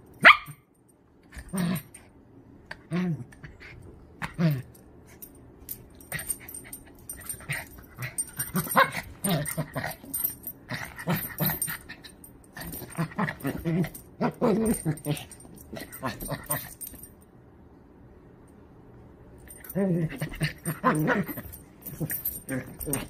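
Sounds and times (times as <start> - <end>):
small dog growling and whining: 2.8 - 4.7, 19.6 - 23.0.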